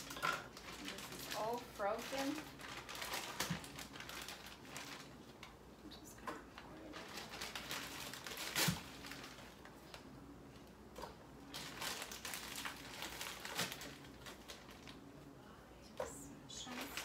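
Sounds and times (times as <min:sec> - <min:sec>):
plastic bag crinkling: 0:00.0 - 0:05.6, 0:06.5 - 0:10.1, 0:11.4 - 0:15.1, 0:16.5 - 0:17.0.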